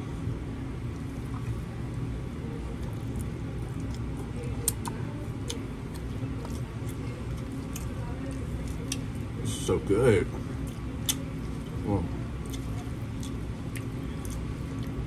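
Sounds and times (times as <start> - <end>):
steady low hum: 0.0 - 15.0
person chewing: 2.7 - 9.3, 10.4 - 15.0.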